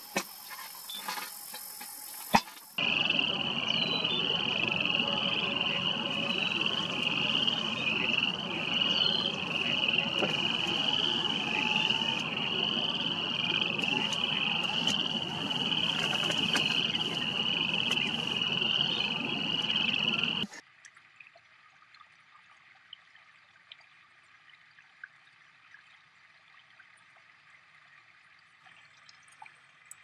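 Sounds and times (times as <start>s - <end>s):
chorus of frogs trilling: 0.0s - 20.5s.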